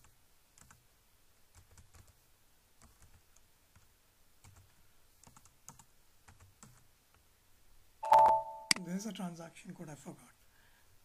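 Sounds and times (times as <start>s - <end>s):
faint keyboard typing: 0.0s - 0.9s, 1.5s - 2.2s, 2.8s - 7.2s.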